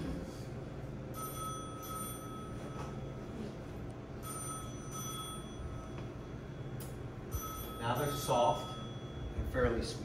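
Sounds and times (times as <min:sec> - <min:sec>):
steady low hum: 0:00.0 - 0:10.0
electronic ringing tone: 0:01.1 - 0:03.4, 0:04.2 - 0:09.4.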